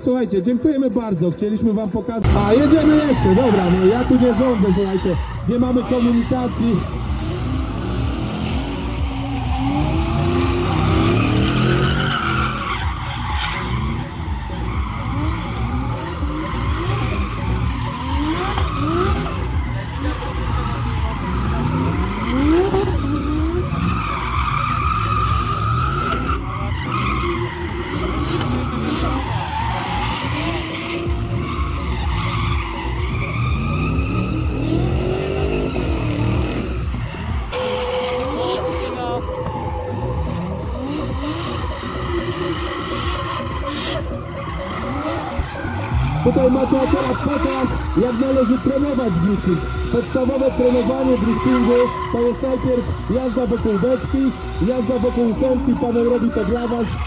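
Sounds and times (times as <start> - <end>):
car engines revving: 0.0 - 57.0
tyres squealing: 2.2 - 57.0.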